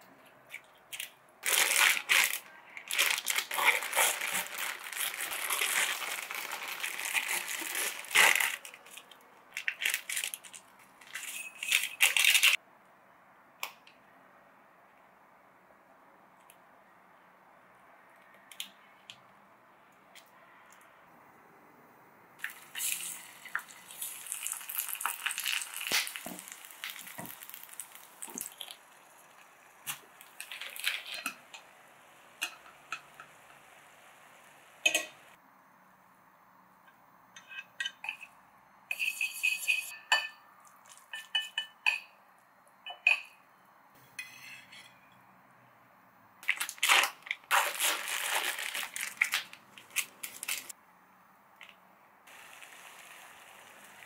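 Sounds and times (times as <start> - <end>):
plastic packet crinkling: 1.0 - 12.6, 30.2 - 31.2, 46.4 - 50.7.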